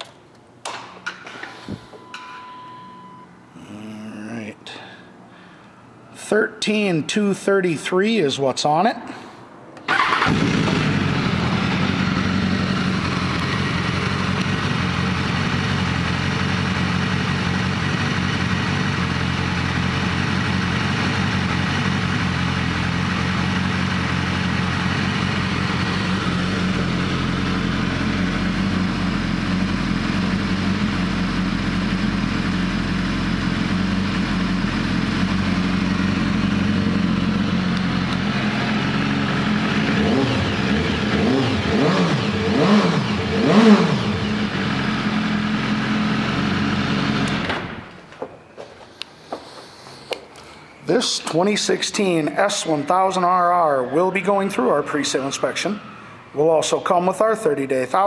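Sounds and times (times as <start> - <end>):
motorcycle engine starting and idling: 9.8 - 48.1.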